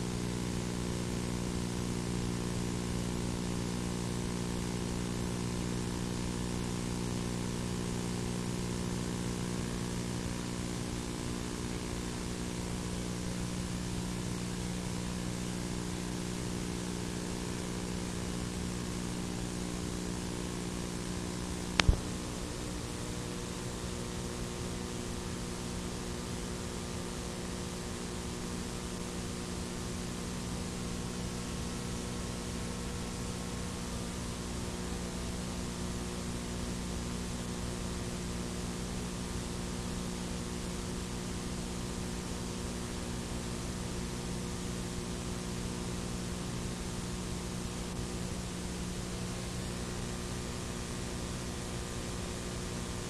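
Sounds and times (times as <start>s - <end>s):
electrical hum and hiss: 0.0s - 53.0s
sharp click: 21.8s - 22.1s.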